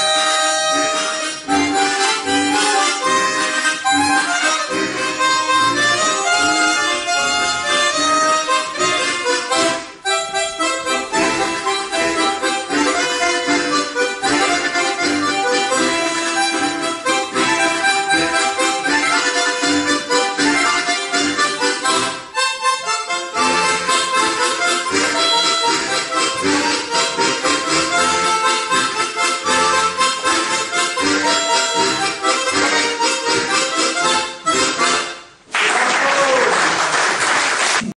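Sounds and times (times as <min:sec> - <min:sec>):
harmonica ensemble playing: 0:00.0 - 0:35.5
applause: 0:35.5 - 0:38.0.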